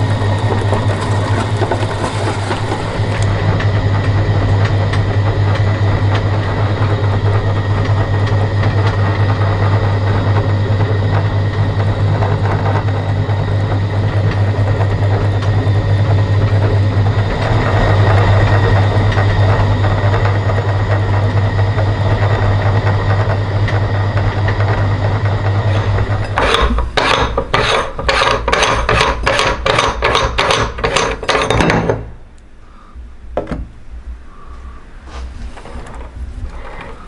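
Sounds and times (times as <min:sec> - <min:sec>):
meat grinder humming: 0:00.0 - 0:31.7
rasping metal scrapes: 0:25.7 - 0:31.6.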